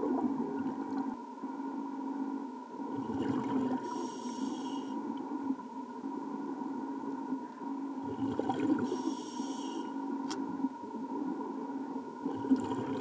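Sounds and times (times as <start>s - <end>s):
steady hum: 0.0s - 13.0s
exhaled bubbles underwater: 2.9s - 4.2s, 8.0s - 9.1s, 12.2s - 13.0s
regulator inhale hiss: 3.8s - 5.1s, 8.8s - 10.1s.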